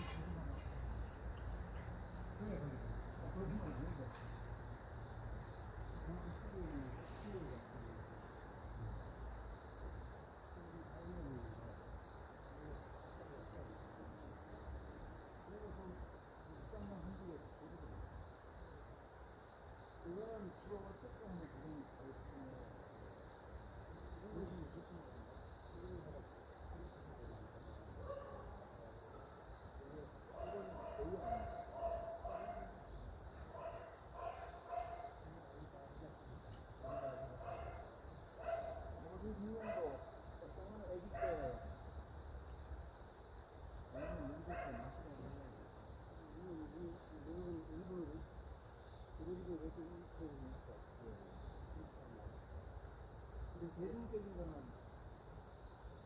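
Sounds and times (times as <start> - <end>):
insect chirring: 0.0 - 56.0.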